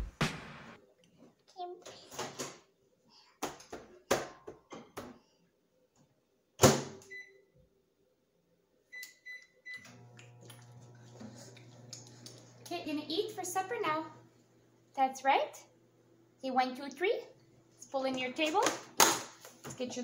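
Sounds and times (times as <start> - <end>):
kitchen knocks and clatters: 1.9 - 2.6, 3.4 - 5.3, 18.0 - 20.0
keypad beeps: 8.9 - 9.9
microwave oven humming: 9.7 - 15.0, 15.6 - 16.4, 17.3 - 17.9.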